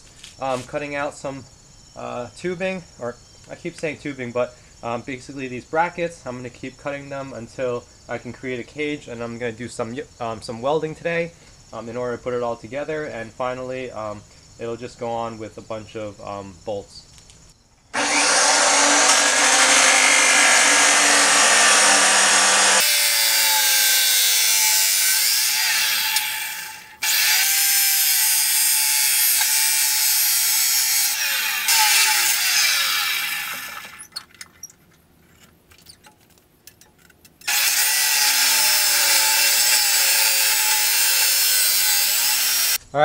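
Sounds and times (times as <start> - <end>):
chop saw cutting steel: 18.0 - 34.1, 37.4 - 42.8.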